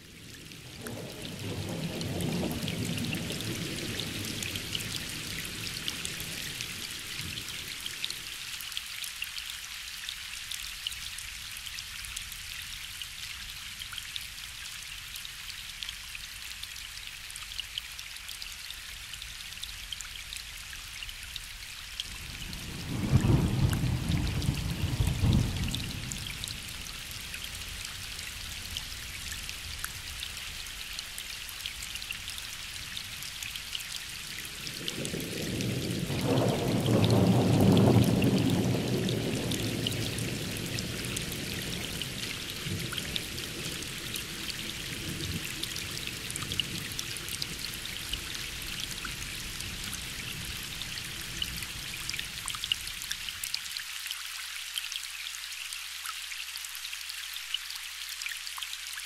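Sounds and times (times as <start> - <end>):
steady rain pattering: 0.0 - 59.0
distant thunder rumbling: 34.6 - 45.4.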